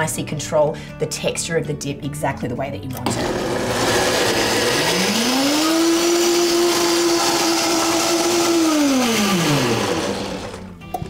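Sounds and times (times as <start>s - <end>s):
blender motor whine: 3.0s - 10.8s.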